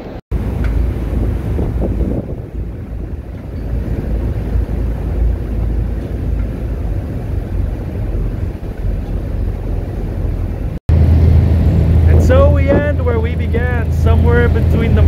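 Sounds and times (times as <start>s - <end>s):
vehicle rumbling in motion: 0.0s - 15.0s.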